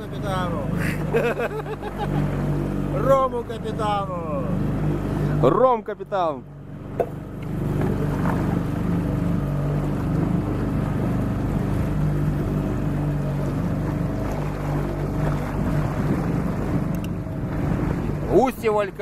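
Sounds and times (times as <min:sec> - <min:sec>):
boat on choppy water: 0:00.0 - 0:19.0
outboard motor running: 0:00.0 - 0:19.0
wind buffeting microphone: 0:06.8 - 0:19.0.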